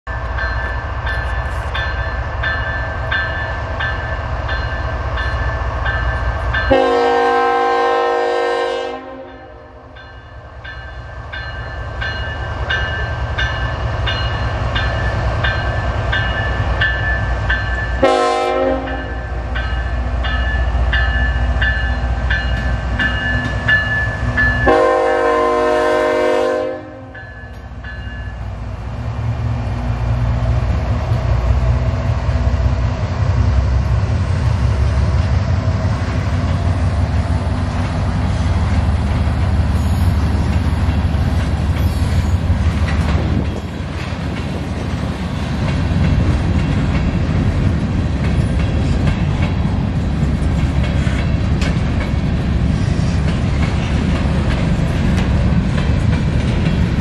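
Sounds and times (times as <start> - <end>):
diesel locomotives rumbling: 0.0 - 57.0
crossing bell ringing: 0.1 - 7.4, 9.2 - 28.6
train air horn blasts: 6.7 - 10.0, 18.0 - 19.5, 24.6 - 27.2.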